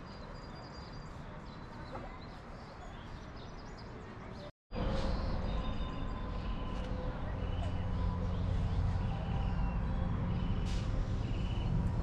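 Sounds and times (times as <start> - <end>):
birds chirping: 0.0 - 12.0.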